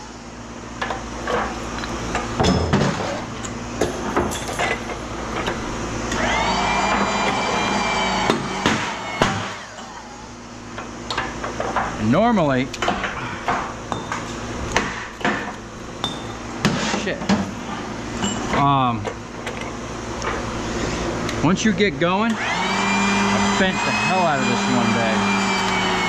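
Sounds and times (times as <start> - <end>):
high whine: 0.0 - 16.6
steady machine hum: 0.0 - 26.0.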